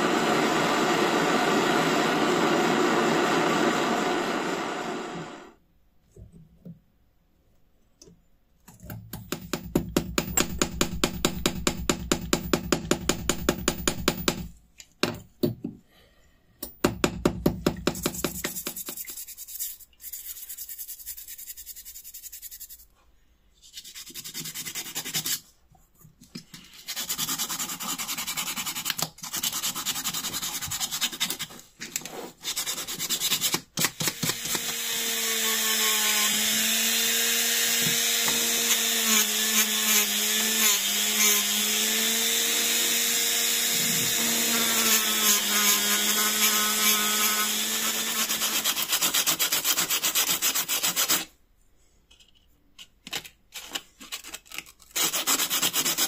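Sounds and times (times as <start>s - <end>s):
scratchy rubbing: 18.0s - 22.9s, 23.6s - 25.5s.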